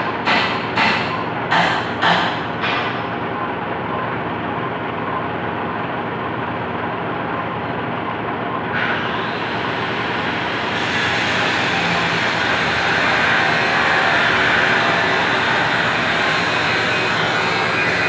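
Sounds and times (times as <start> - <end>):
metal lathe humming: 8.7 - 18.0
drill cutting metal: 8.8 - 18.0.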